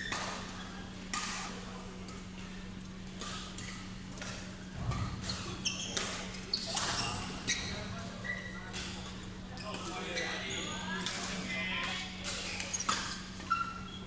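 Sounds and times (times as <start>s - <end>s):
shoe squeaks on court: 5.0s - 8.7s, 12.7s - 14.0s.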